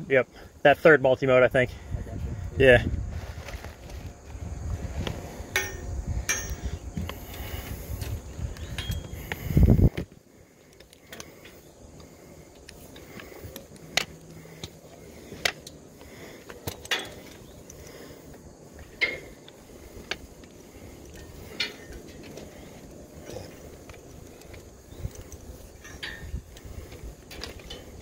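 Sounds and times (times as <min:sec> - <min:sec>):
faint steady background noise: 0:00.0 - 0:28.0
metallic clicks of gear handled: 0:08.5 - 0:09.4, 0:12.5 - 0:28.0.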